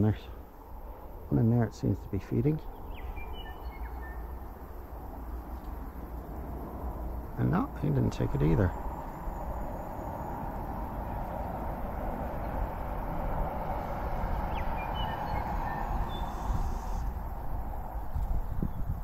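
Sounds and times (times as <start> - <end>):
steady rushing outdoor noise: 0.0 - 19.0
faint bird chirps: 2.5 - 4.5, 13.6 - 17.4.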